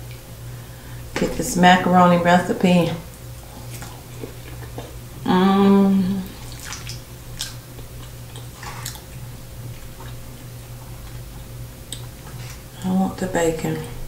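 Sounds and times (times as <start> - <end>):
soft chewing: 3.1 - 5.2, 6.2 - 12.8
person humming mmm: 4.8 - 6.6.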